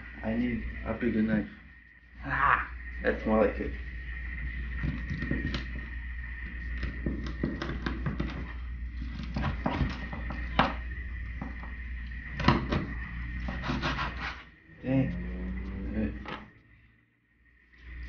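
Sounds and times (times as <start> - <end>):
faint high-pitched hum: 0.0 - 7.1, 14.5 - 18.0.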